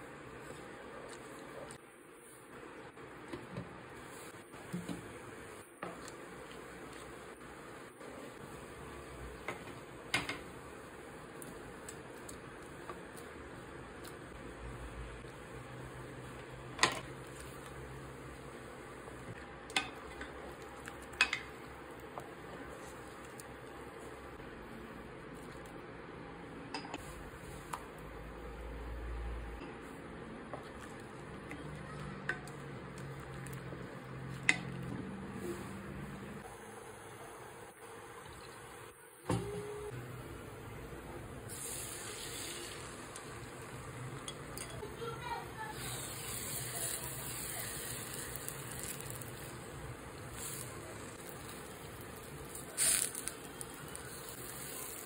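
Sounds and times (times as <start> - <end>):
faint steady hiss: 35.3 - 55.0
egg sizzling in hot oil: 41.4 - 44.8, 45.6 - 55.0
metal utensil clinking on pot: 44.2 - 44.8.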